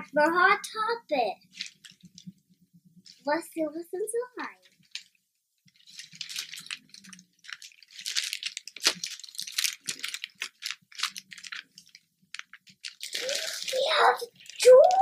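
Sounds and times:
plastic bag crinkling: 1.5s - 2.4s, 4.6s - 15.0s.

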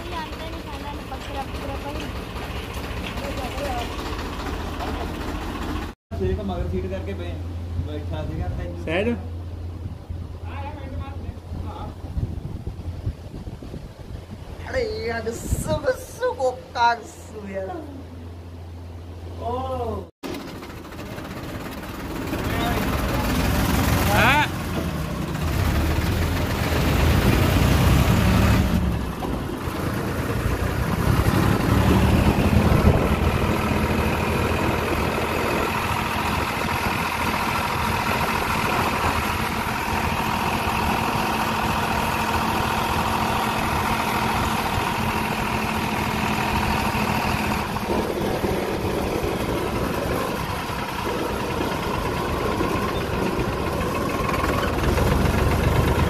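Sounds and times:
tractor diesel engine running: 0.0s - 7.8s, 20.2s - 56.0s.

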